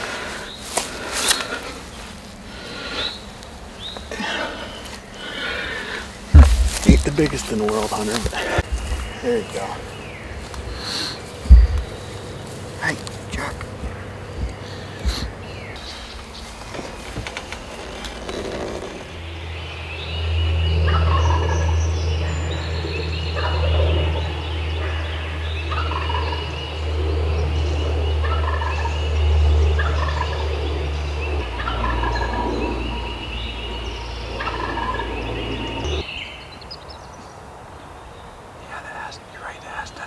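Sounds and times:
steady low hum: 0:00.0 - 0:36.1
turkeys gobbling: 0:25.7 - 0:26.5, 0:28.2 - 0:29.0, 0:29.7 - 0:33.2, 0:34.3 - 0:36.0.

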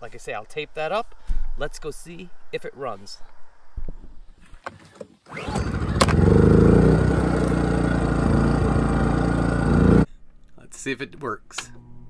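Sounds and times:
generator engine running: 0:05.3 - 0:10.1.

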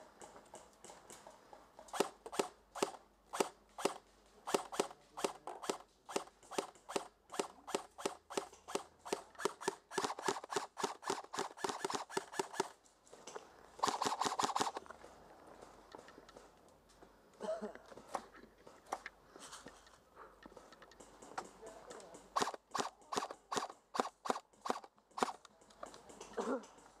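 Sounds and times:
airsoft gun shots: 0:02.0 - 0:12.7, 0:13.8 - 0:14.8.

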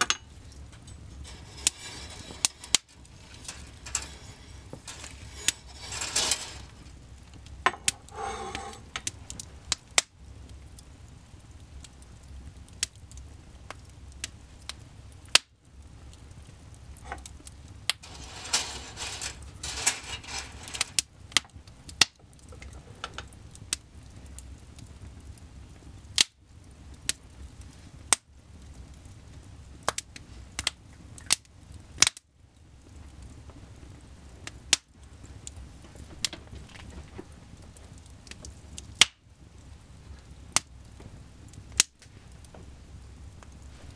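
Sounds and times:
wood fire crackling: 0:00.0 - 0:43.9
sharp pops of fire: 0:29.8 - 0:32.2, 0:38.2 - 0:39.3, 0:40.5 - 0:42.7.

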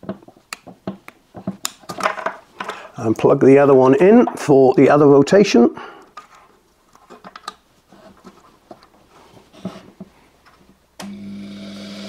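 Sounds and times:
electric motor humming: 0:11.0 - 0:12.0.

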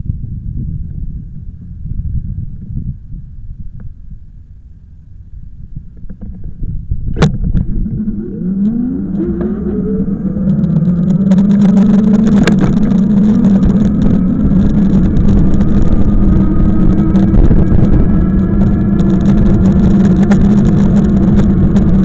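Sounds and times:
sharp click: 0:07.1 - 0:07.7
vehicle engine pulling away: 0:07.3 - 0:22.0.

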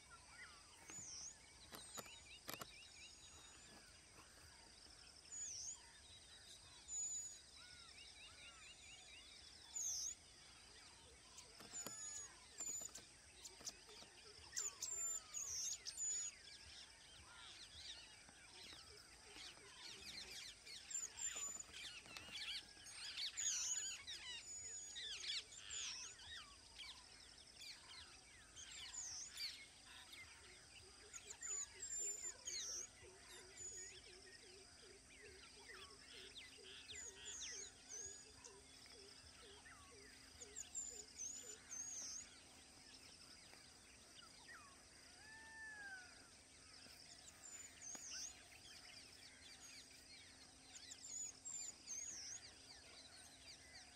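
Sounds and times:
birds chirping and whistling: 0:18.7 - 0:27.1, 0:35.6 - 0:53.9.

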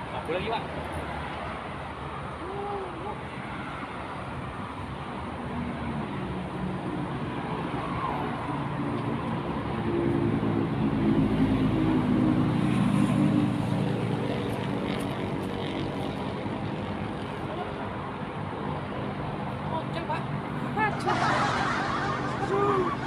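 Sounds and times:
road noise: 0:00.0 - 0:23.0.

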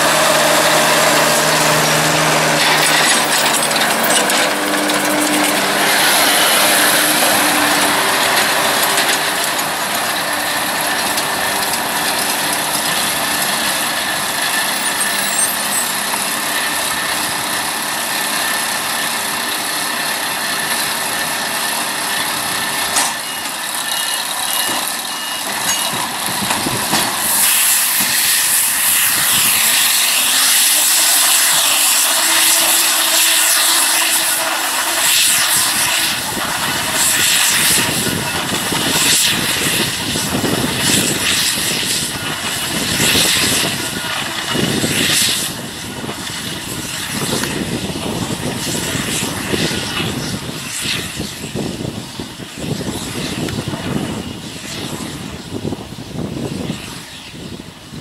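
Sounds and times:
tractor engine and baler working: 0:00.0 - 0:58.0.

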